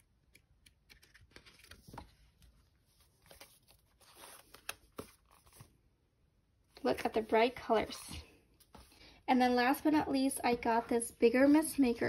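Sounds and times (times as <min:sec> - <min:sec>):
paper rustling: 0:00.8 - 0:05.8.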